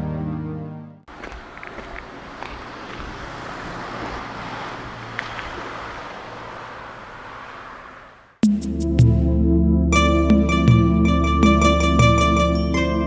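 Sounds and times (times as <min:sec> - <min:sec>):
music: 0:00.0 - 0:01.0, 0:08.4 - 0:13.0
outdoor background rush: 0:01.1 - 0:08.4.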